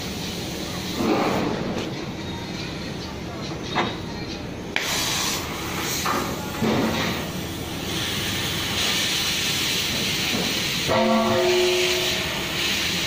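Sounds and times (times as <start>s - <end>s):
cutting torch hissing: 4.8s - 13.0s.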